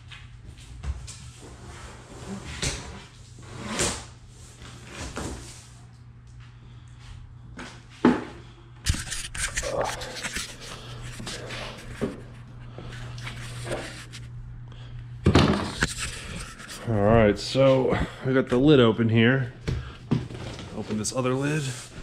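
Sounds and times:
cardboard and tape scraping: 8.9 - 14.3, 15.5 - 16.9.

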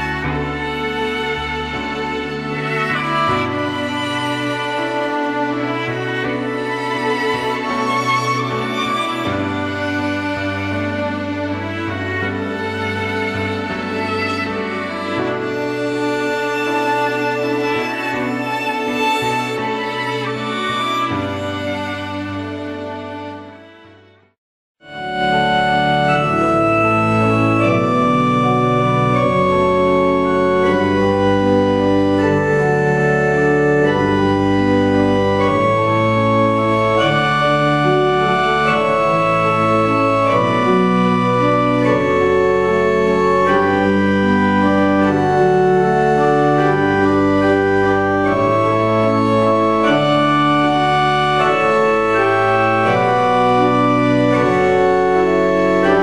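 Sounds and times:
organ playing held chords: 25.0 - 56.0.

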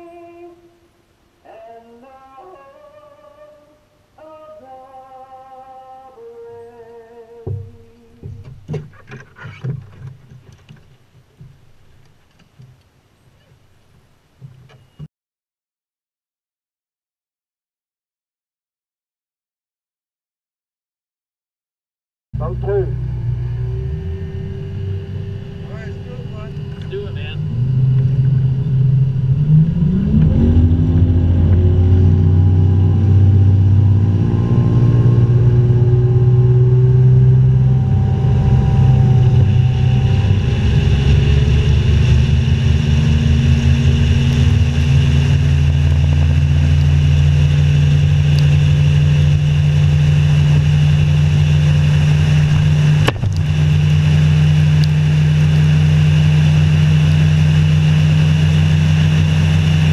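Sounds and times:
outboard motor accelerating: 7.4 - 12.2, 22.4 - 59.9.

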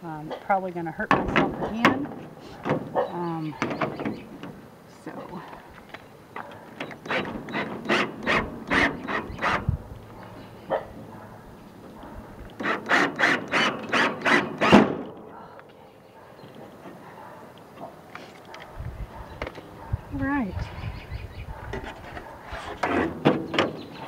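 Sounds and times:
cordless drill driving screw: 6.8 - 9.7, 12.5 - 14.9.

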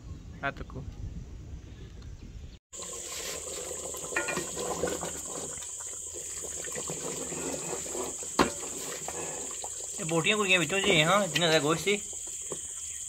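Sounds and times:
curry bubbling in metal pot: 2.7 - 13.0
ladle stirring: 2.8 - 12.9.

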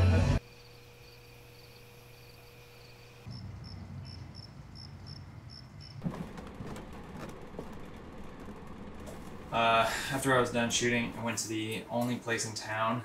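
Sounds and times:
crickets chirping: 0.4 - 10.2
thump: 6.0 - 7.8.

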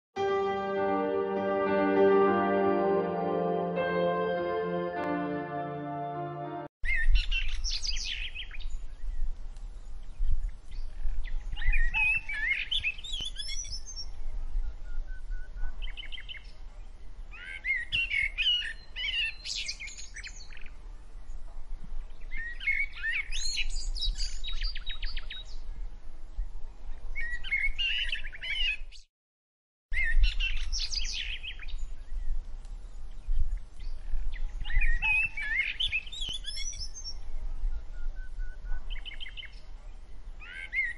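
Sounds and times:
birds chirping and trilling: 33.8 - 39.6.

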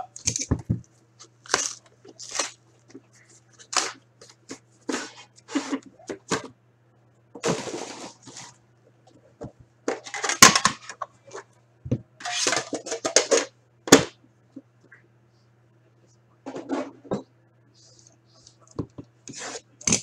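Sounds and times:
metal tin scraping cardboard: 12.2 - 13.4.

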